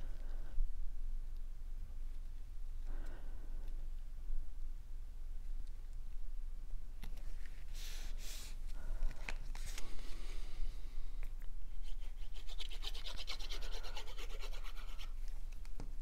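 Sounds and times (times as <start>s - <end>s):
glue bottle tip scratching card: 11.8s - 15.2s.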